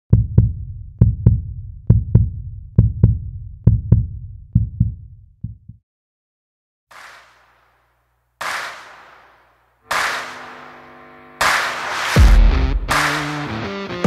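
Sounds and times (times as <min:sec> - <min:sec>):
deep bass thumps with clicks: 0:00.1 - 0:05.8.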